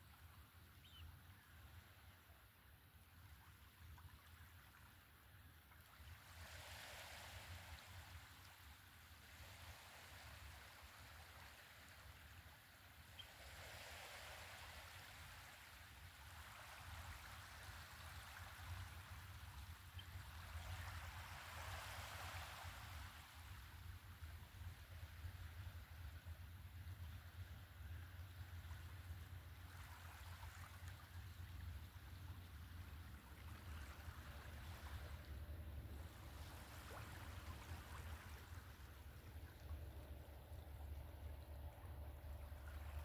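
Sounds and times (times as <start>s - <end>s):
small waves lapping on beach: 0.0s - 43.0s
low steady rumble: 30.4s - 43.0s.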